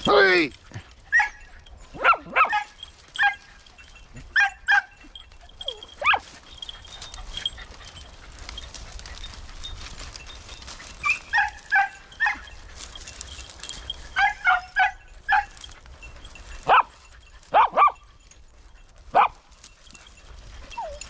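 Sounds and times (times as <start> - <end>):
dogs barking: 0.0 - 21.0
dogs yelping: 0.0 - 21.0.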